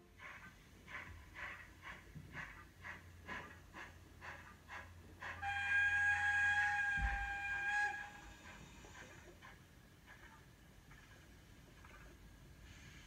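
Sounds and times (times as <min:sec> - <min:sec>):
steam locomotive chuffing: 0:00.0 - 0:11.2
steam whistle: 0:05.2 - 0:09.0.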